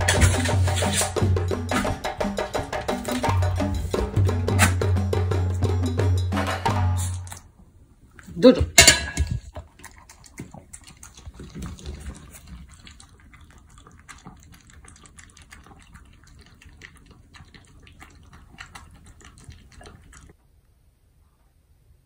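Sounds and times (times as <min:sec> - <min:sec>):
dog lapping and chewing food: 0:00.0 - 0:06.3, 0:07.1 - 0:20.4.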